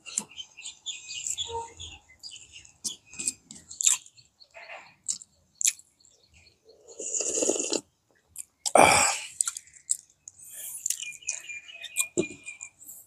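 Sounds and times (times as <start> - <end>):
crunching and chewing fried food: 3.2 - 4.2, 4.9 - 6.2, 6.8 - 12.8
slurping from soup bowl: 6.9 - 7.9.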